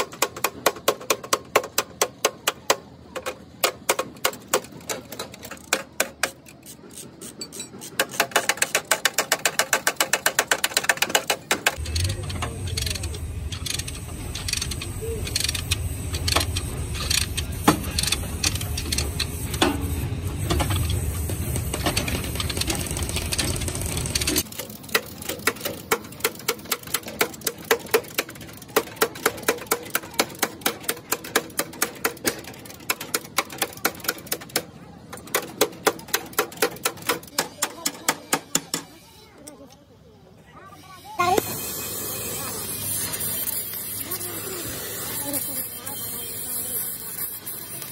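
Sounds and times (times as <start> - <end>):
hammer tapping on sheet steel: 24.9 - 38.9.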